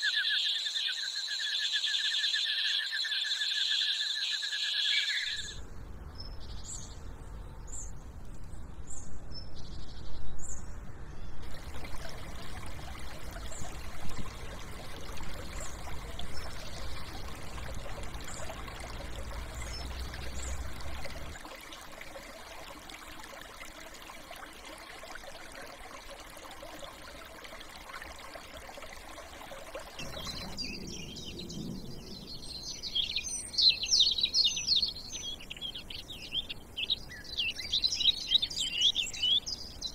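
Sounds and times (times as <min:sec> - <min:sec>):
running water: 0:11.4 - 0:39.9.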